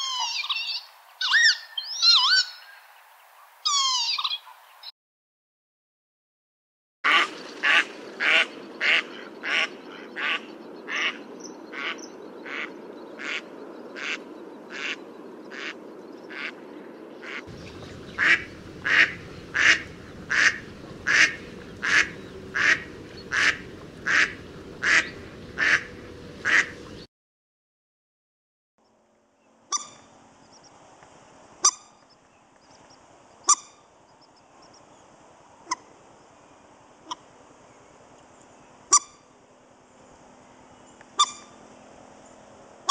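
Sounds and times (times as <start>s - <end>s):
moorhen sharp calls: 0.0s - 2.8s, 17.2s - 27.0s, 41.1s - 41.6s
ducks quacking: 7.1s - 16.6s, 17.2s - 27.1s.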